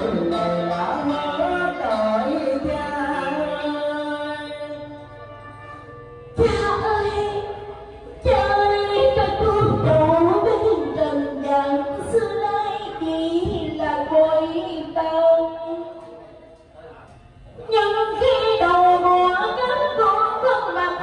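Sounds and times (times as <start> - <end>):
woman singing a lament: 0.0 - 5.1, 6.4 - 16.0, 17.7 - 21.0
instrumental accompaniment: 0.0 - 21.0.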